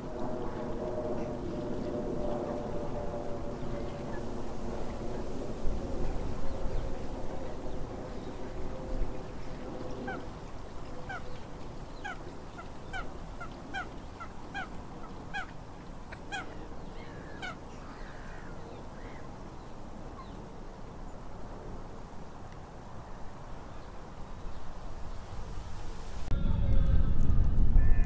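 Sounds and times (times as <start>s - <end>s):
goose honking: 11.0s - 11.2s, 12.0s - 17.6s
steady low rumble: 26.2s - 28.0s.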